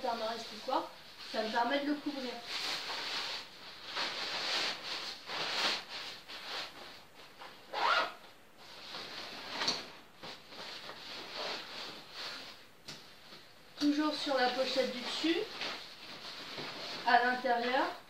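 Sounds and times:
nylon fabric rustling: 0.0s - 18.0s
zipper being worked: 7.7s - 8.2s.

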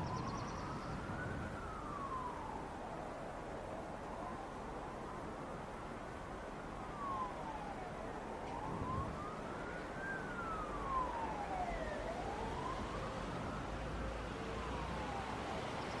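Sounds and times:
background noise: 0.0s - 16.0s
emergency vehicle siren wailing: 0.0s - 16.0s.

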